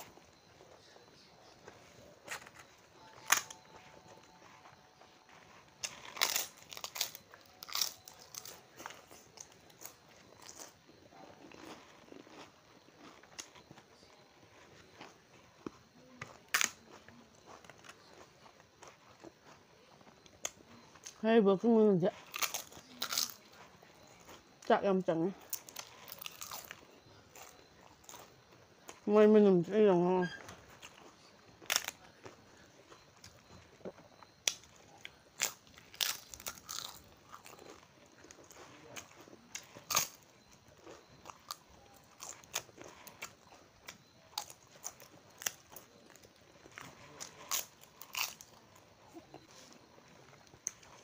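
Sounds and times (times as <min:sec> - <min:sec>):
person chewing: 0:00.0 - 0:21.2, 0:22.1 - 0:24.6, 0:25.4 - 0:29.0, 0:30.5 - 0:51.0
crisp papad crunching: 0:01.6 - 0:14.0
sharp crackle: 0:05.3 - 0:10.8.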